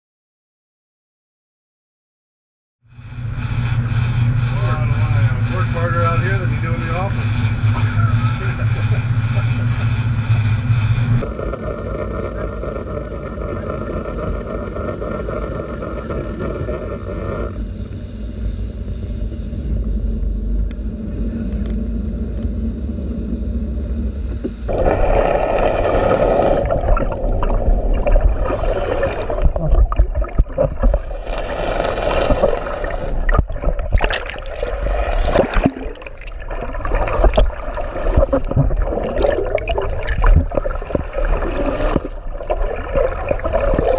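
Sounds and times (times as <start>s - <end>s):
boat engines droning: 3.0s - 29.6s
underwater crackles: 3.0s - 43.9s
underwater water rushing and bubbling: 3.0s - 43.9s.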